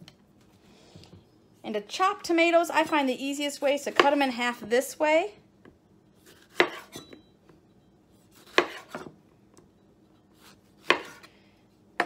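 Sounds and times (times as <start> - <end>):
knife cutting tomatoes: 6.2 - 7.2, 8.2 - 9.1, 10.3 - 11.3.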